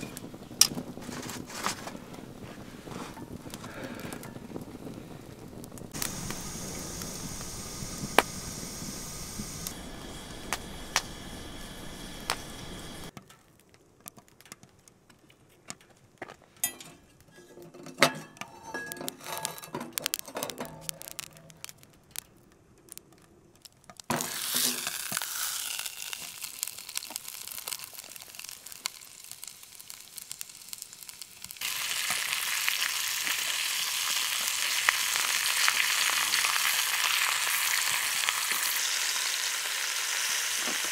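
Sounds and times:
steak sizzling in a skillet: 0:00.0 - 0:13.1, 0:24.1 - 0:40.9
wood fire crackling: 0:00.0 - 0:40.9
clicks and knocks: 0:16.6 - 0:24.2.

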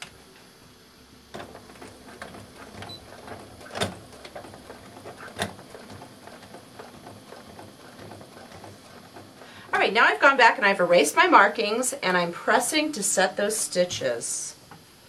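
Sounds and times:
sewing machine clicks: 0:01.4 - 0:09.5.

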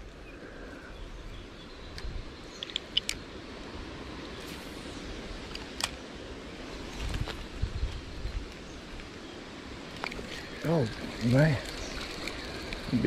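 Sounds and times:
outdoor background noise: 0:00.0 - 0:13.0
sharp clicks and ticks: 0:02.0 - 0:03.2.

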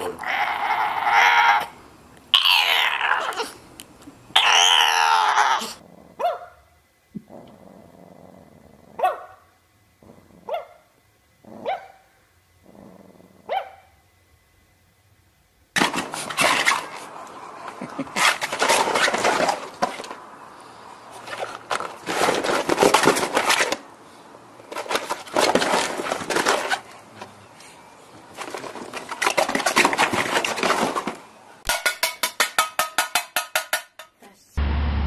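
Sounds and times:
low growling: 0:04.8 - 0:06.2, 0:07.2 - 0:09.0, 0:10.0 - 0:10.5, 0:12.6 - 0:13.5
puppy barking: 0:06.2 - 0:06.6, 0:09.0 - 0:09.5, 0:10.5 - 0:10.8, 0:11.6 - 0:12.1, 0:13.5 - 0:13.9.

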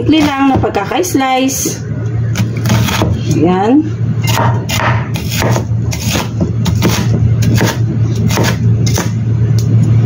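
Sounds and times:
steady low hum: 0:00.0 - 0:10.0
knife chopping on wooden board: 0:04.3 - 0:09.2.

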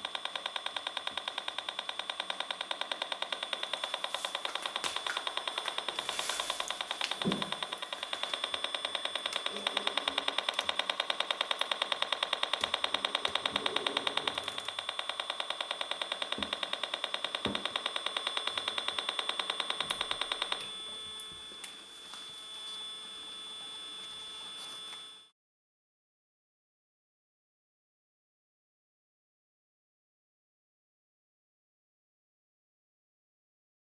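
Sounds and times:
rapid buzzing rattle: 0:00.0 - 0:21.1.

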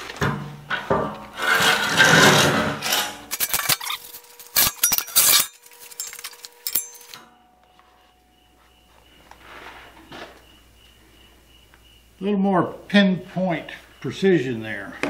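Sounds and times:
sharp metal clanks: 0:00.9 - 0:07.5
metal tubing scraping on table: 0:01.3 - 0:07.2.

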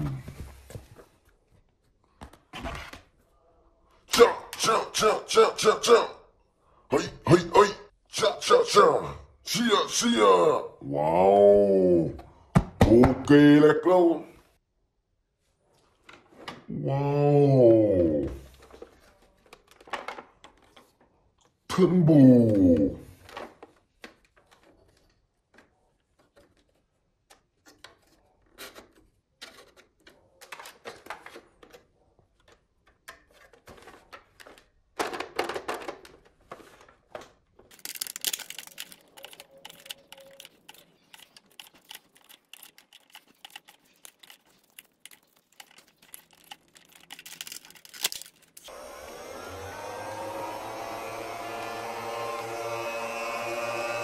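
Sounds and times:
toy blaster plastic clicking: 0:37.8 - 0:43.8.

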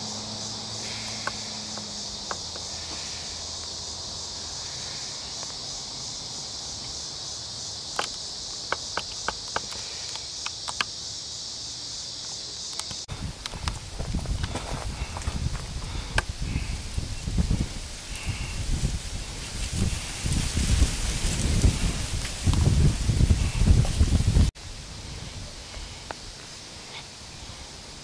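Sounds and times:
insects chirring in trees: 0:00.0 - 0:28.0
sharp clicks: 0:07.9 - 0:11.0, 0:12.7 - 0:13.8.

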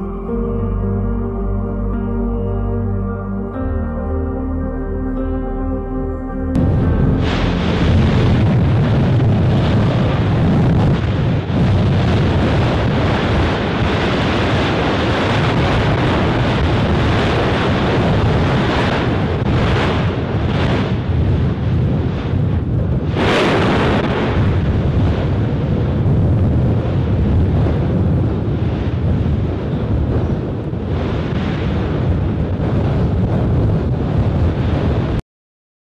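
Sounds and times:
volcano eruption rushing noise: 0:06.6 - 0:35.2
wind buffeting the microphone: 0:06.6 - 0:35.2.

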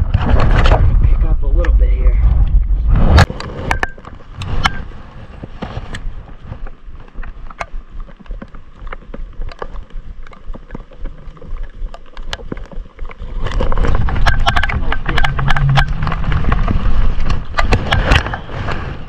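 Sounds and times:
wind rumbling on microphone: 0:00.0 - 0:19.0.

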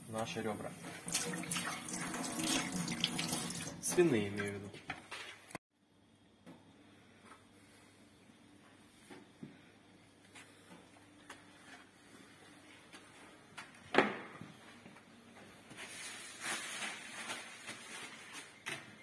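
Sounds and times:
rustling and scraping: 0:15.5 - 0:19.0.

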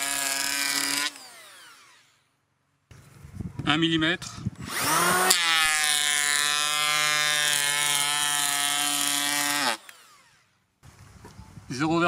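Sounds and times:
electric hand planer whine: 0:00.0 - 0:02.2, 0:04.6 - 0:10.5.

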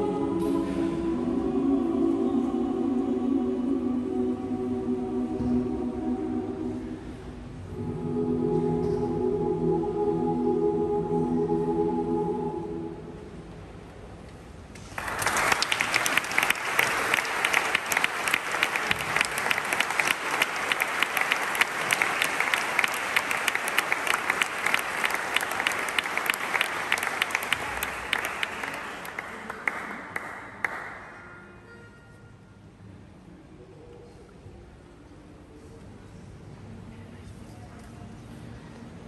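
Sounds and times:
audience applauding: 0:14.8 - 0:31.2.

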